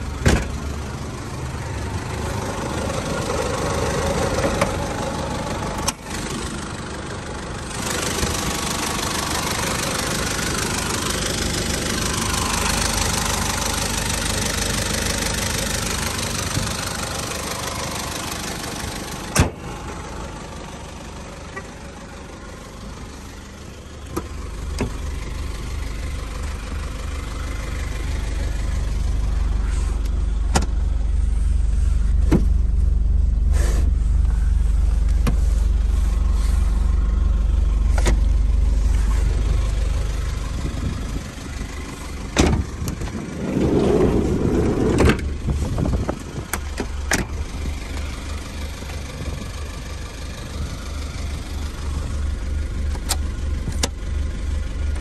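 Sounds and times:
diesel engine idling clatter: 0.0s - 55.0s
low rumble: 24.4s - 49.8s.

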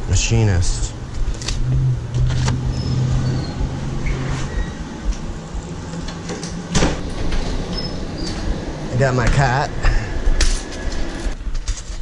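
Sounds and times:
steady low hum: 0.0s - 12.0s
door opening: 1.3s - 9.5s.

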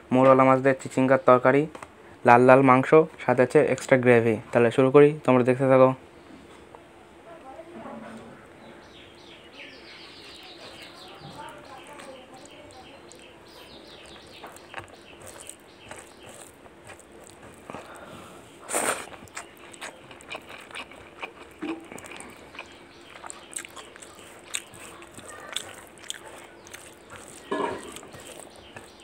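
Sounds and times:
wet chewing: 10.0s - 29.0s
lip smacks: 18.7s - 29.0s.

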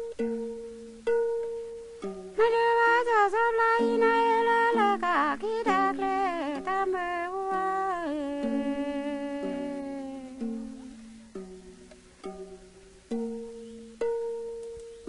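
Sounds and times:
plucked tube zither: 0.0s - 15.0s
person singing: 2.4s - 11.2s.

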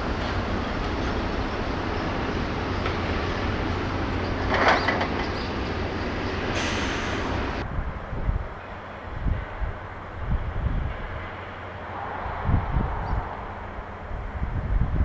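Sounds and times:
vehicle clatter: 4.1s - 6.6s
brief hiss: 6.5s - 7.4s
low vehicle rumble: 9.1s - 15.0s.

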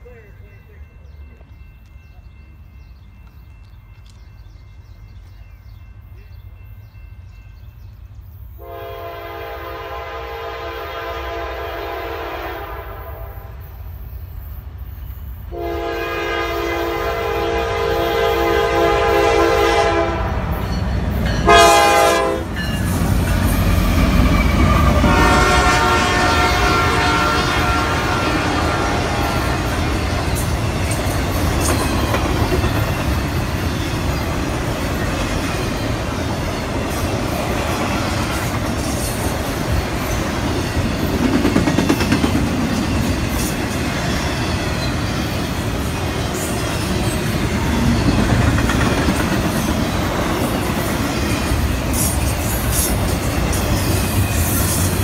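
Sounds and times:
train rumble: 0.0s - 55.0s
locomotive air horn blasts: 8.6s - 13.6s, 15.5s - 20.6s, 21.4s - 22.6s, 24.6s - 29.7s.

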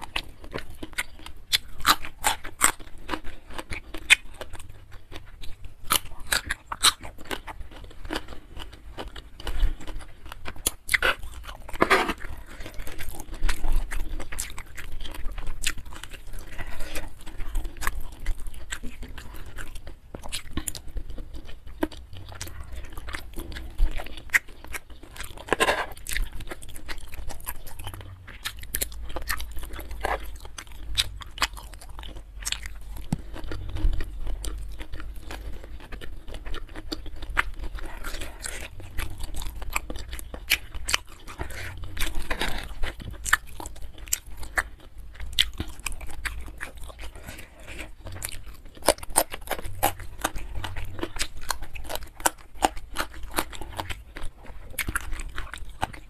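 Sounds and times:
person chewing with wet smacks: 0.0s - 56.0s.

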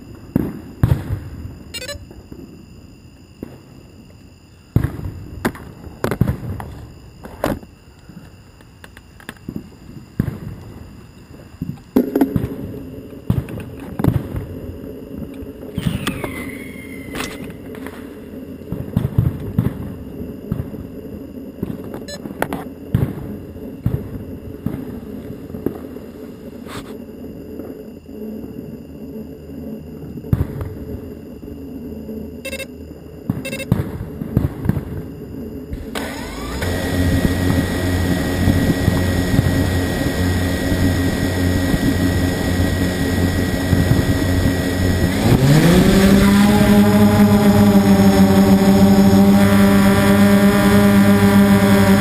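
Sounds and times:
small fireworks popping and crackling: 0.1s - 1.5s, 3.2s - 16.4s, 17.1s - 27.8s, 30.2s - 31.1s, 33.2s - 35.9s, 38.4s - 40.0s, 40.7s - 45.1s
falling whistle: 1.8s - 2.0s, 15.8s - 17.7s
drone motors humming: 27.1s - 52.0s.

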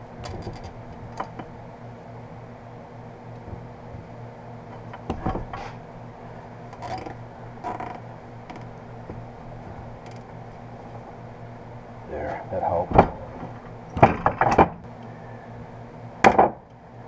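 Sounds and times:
steady low hum: 0.0s - 17.0s
wrap rustling and scraping on metal: 3.3s - 11.4s.

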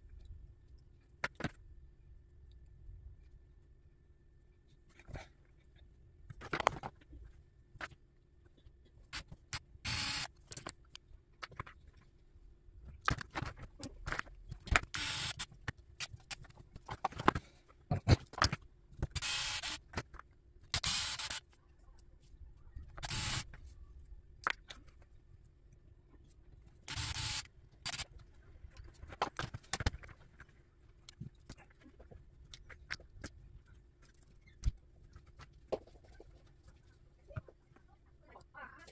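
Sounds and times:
small parts clicking and rattling: 5.6s - 12.2s, 12.9s - 25.2s, 26.1s - 36.5s
electric screwdriver whirring: 9.9s - 10.3s, 14.9s - 15.4s, 19.2s - 19.8s, 20.8s - 21.4s, 23.0s - 23.4s, 26.9s - 28.0s.

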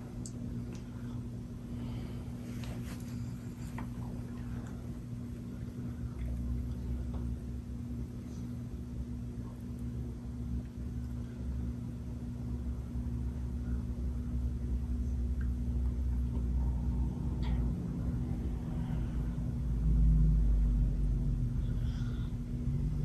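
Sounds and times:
ceiling fan motor hum: 0.0s - 23.0s
deep rumble: 13.6s - 23.0s.

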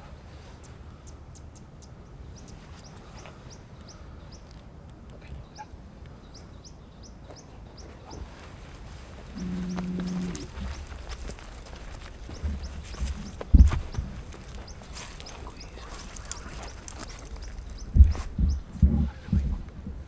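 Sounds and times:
bird chirping: 5.2s - 8.5s, 9.3s - 19.3s
buffalo low moo-like call: 9.3s - 10.6s.

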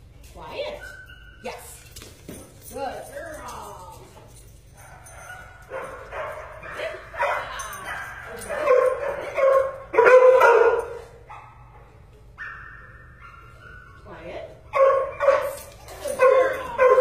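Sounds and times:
dog barking: 4.8s - 11.6s, 14.7s - 17.0s.

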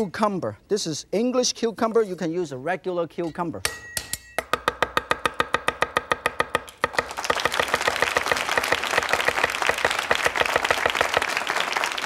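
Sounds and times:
cleaver chopping on wooden board: 4.4s - 8.2s
audience applauding: 6.9s - 12.0s.

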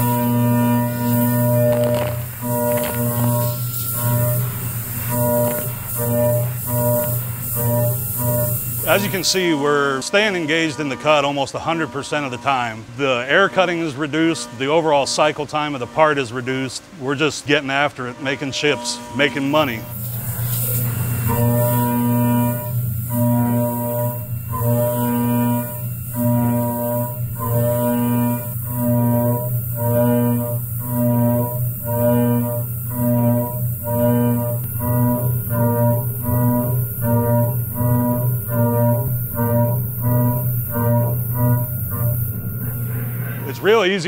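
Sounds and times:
bowed low strings drone: 0.0s - 12.7s, 18.7s - 44.0s
pulsing string notes: 18.6s - 44.0s.

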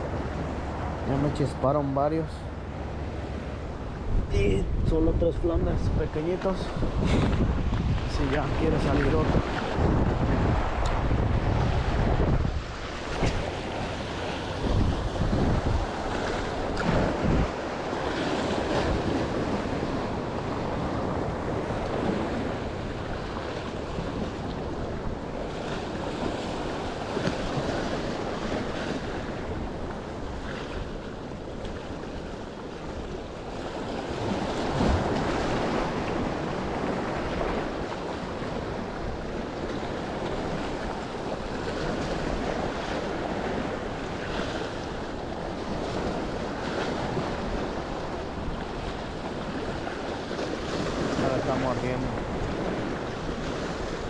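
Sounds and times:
ocean waves breaking on rocks: 0.0s - 54.0s
wind buffeting microphone: 0.0s - 54.0s.

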